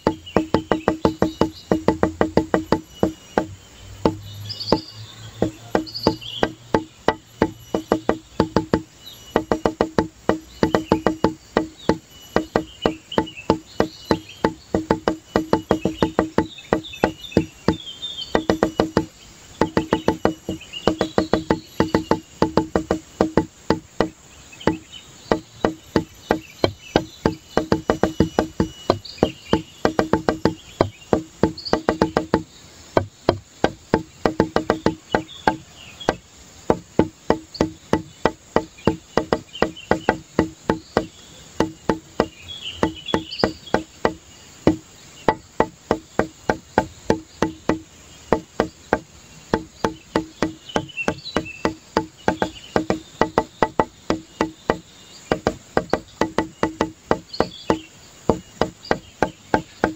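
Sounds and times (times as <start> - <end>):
faint high chirps: 0.0 - 36.3
wood block knocks music: 0.0 - 59.9.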